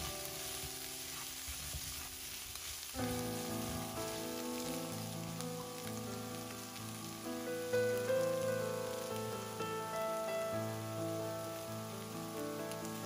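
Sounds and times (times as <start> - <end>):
food sizzling in a wok: 0.0 - 13.0
background music: 3.0 - 13.0.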